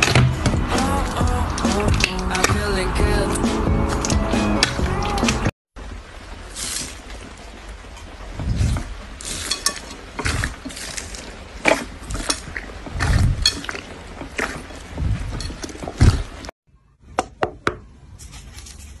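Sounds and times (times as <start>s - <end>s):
foam beads crackling in slime: 6.5s - 7.0s
slime squishing: 8.3s - 16.5s.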